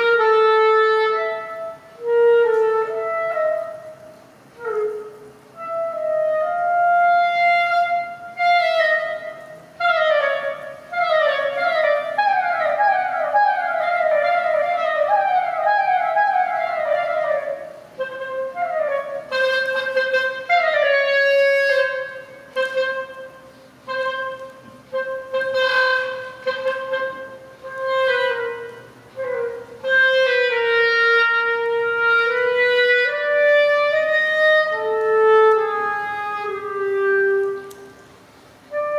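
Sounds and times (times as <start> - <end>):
solo clarinet playing: 0.0 - 38.9.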